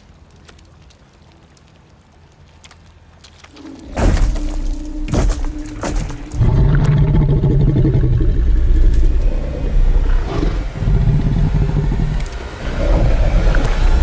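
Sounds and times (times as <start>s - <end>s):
giant wolf growling: 3.6s - 14.0s.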